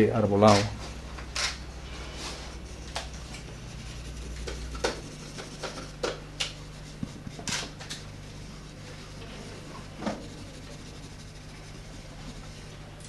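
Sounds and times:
steady low hum: 0:00.0 - 0:13.0
pencil sketching on paper: 0:01.8 - 0:12.7.

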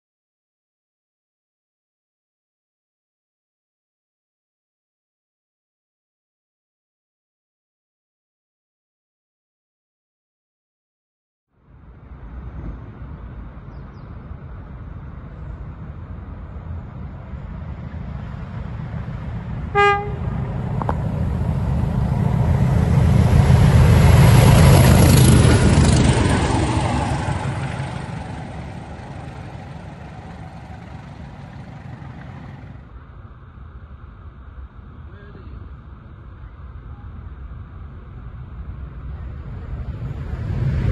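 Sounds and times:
diesel locomotive engines rumbling: 0:11.6 - 0:40.9
locomotive horn toot: 0:19.7 - 0:20.6.

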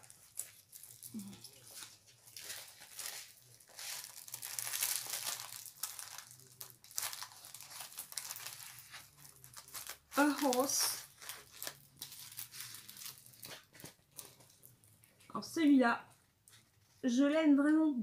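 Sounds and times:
plastic film crinkling: 0:00.0 - 0:15.3.

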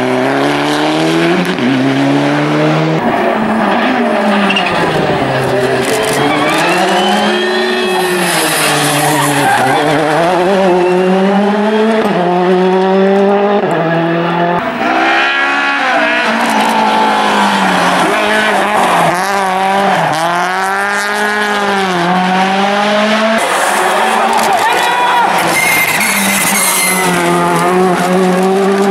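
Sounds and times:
rally car engines revving: 0:00.0 - 0:28.9.

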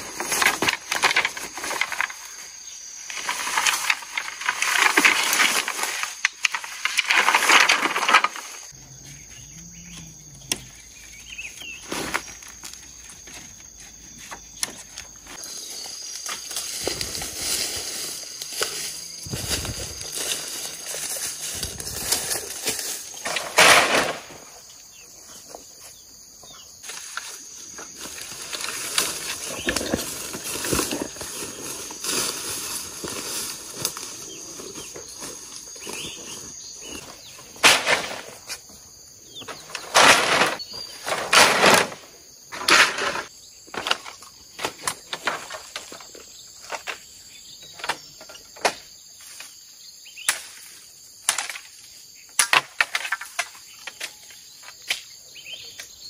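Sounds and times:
bamboo leaves rustling: 0:00.0 - 0:09.3, 0:10.7 - 0:25.9, 0:26.8 - 0:54.8
bamboo poles clattering: 0:00.0 - 0:09.3, 0:10.0 - 0:24.6, 0:26.8 - 0:49.6, 0:50.2 - 0:55.1.

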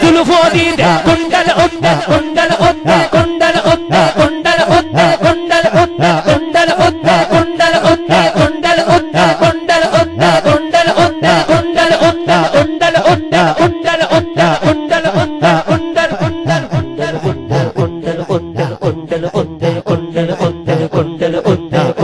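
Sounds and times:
drum beat with falling bass strokes: 0:00.0 - 0:02.3
steady held drone note: 0:16.4 - 0:18.8
wavering melody: 0:16.5 - 0:18.7.

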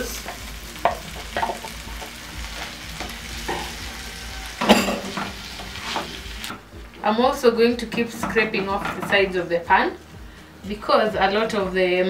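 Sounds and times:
food sizzling in oil: 0:00.0 - 0:11.6
spatula knocking on pan: 0:00.8 - 0:02.1
tomatoes scraped into pan: 0:05.1 - 0:06.5.

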